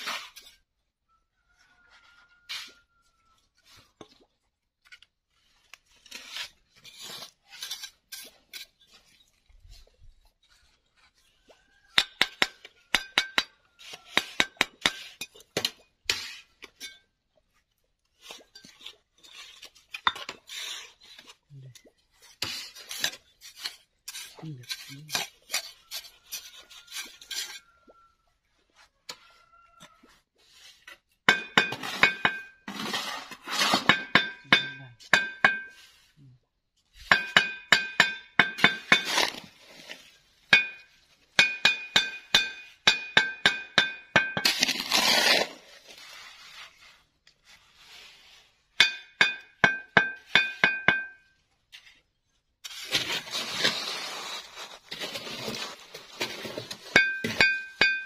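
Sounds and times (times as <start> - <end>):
trowel clinking on bricks: 12.0 - 17.1, 31.3 - 32.9, 33.5 - 35.8, 37.0 - 39.4, 40.5 - 45.4, 48.8 - 51.3, 56.2 - 58.0.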